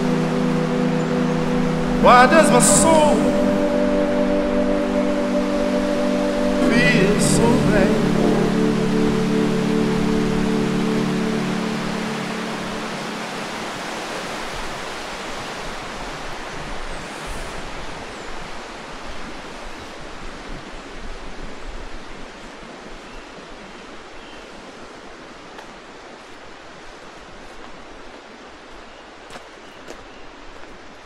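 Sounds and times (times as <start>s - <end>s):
steady rushing noise: 0.0s - 20.1s.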